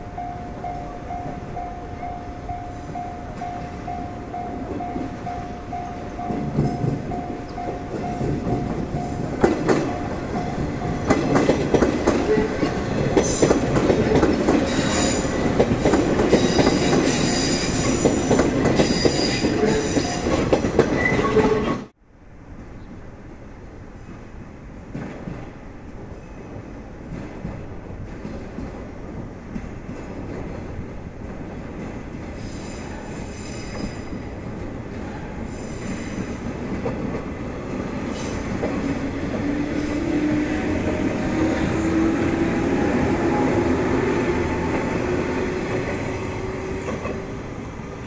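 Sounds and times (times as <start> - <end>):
train wheels clattering: 2.8 - 21.8, 27.0 - 48.0
train wheels squealing: 14.7 - 15.4, 16.3 - 21.9, 32.4 - 34.4, 35.2 - 36.5.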